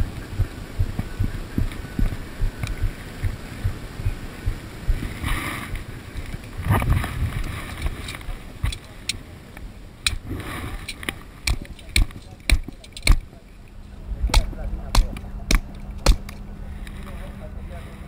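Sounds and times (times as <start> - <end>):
wind thumps on microphone: 0.0 - 8.0
scrapes and rustles: 5.0 - 9.1
sharp clicks: 10.8 - 13.3.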